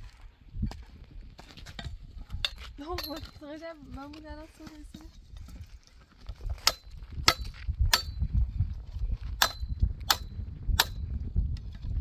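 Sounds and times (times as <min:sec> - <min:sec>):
pickaxe striking stony soil: 0:01.4 - 0:03.6, 0:06.3 - 0:08.4, 0:09.3 - 0:12.0.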